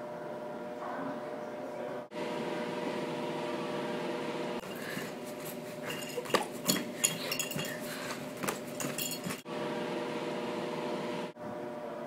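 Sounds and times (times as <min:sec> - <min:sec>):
sharp ringing clinks and taps: 0:05.8 - 0:09.4.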